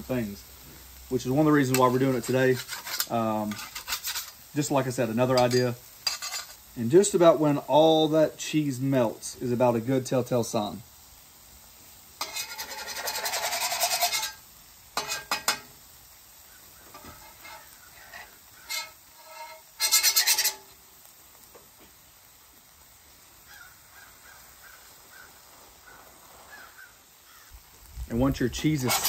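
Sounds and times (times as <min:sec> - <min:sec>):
metal spatula scraping griddle: 0:01.4 - 0:06.7, 0:12.2 - 0:15.8, 0:16.8 - 0:20.8, 0:28.3 - 0:29.0
faint bird calls: 0:23.4 - 0:27.6.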